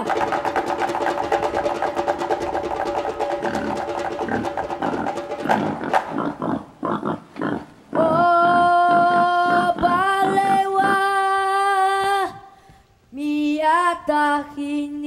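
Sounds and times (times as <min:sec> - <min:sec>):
rhythmic drum beats: 0:00.0 - 0:06.6.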